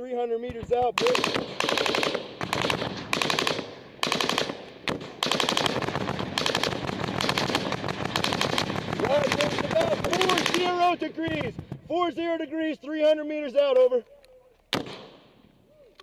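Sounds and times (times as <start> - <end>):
automatic gunfire: 1.0 - 11.0, 14.7 - 15.2.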